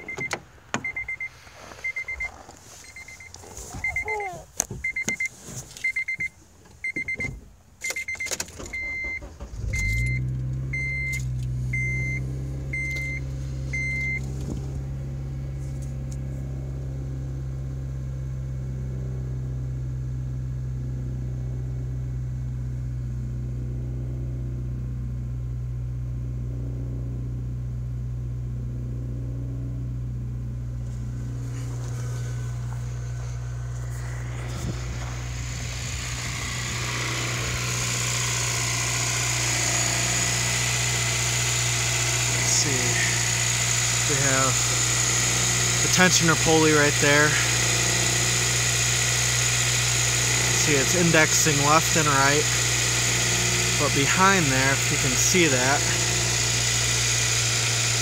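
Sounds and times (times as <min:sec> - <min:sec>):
car door and seat clicks: 0:00.0 - 0:01.1, 0:02.2 - 0:05.9
car warning chime beeping: 0:00.0 - 0:14.4, 0:31.0 - 0:48.0
car engine starting and idling: 0:00.0 - 0:58.0.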